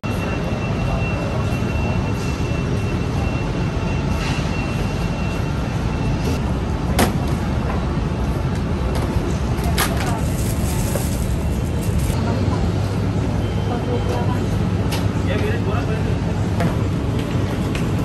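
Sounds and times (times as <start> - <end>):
vehicle interior rumble: 6.3 - 12.2.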